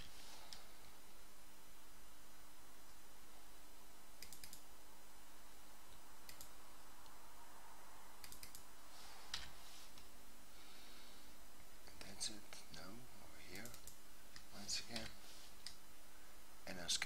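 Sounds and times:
faint hum and hiss: 0.0s - 17.0s
mouse buttons clicking: 4.2s - 4.6s, 6.3s - 6.5s, 8.2s - 8.6s.

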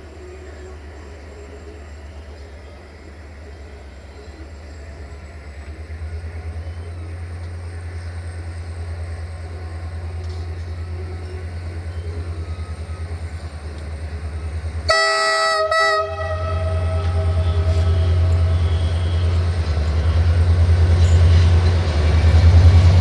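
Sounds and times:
diesel locomotive engine throbbing: 0.0s - 23.0s
loud locomotive horn: 14.8s - 20.6s.

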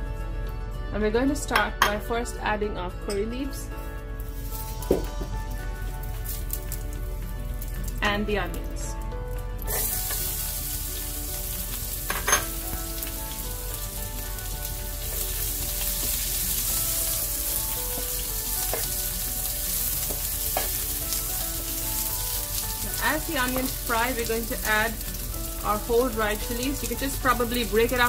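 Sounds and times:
onions sizzling in hot oil: 4.2s - 8.0s, 9.6s - 28.0s.

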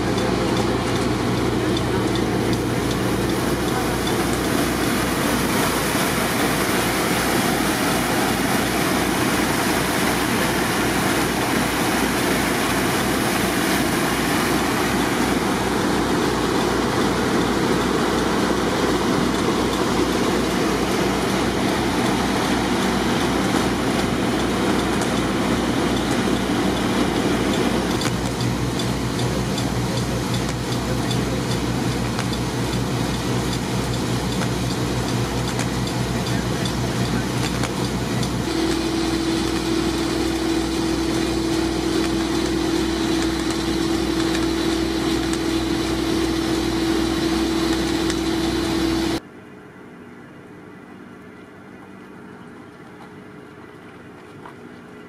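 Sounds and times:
pumps throbbing: 0.0s - 49.2s
water gushing from hose: 0.0s - 49.2s.

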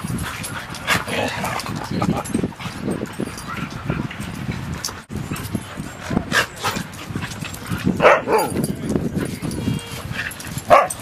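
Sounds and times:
dogs barking: 5.3s - 8.7s, 10.3s - 11.0s.

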